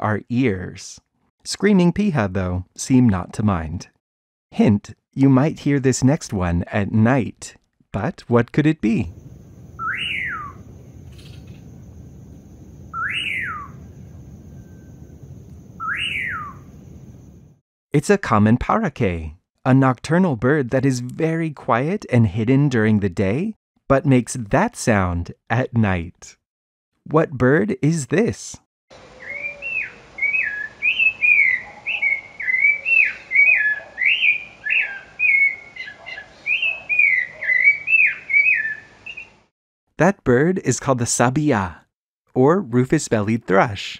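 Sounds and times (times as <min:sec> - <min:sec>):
bird whistling night call: 0:09.6 - 0:17.6, 0:29.0 - 0:39.4
faint steady high tone: 0:13.8 - 0:15.4.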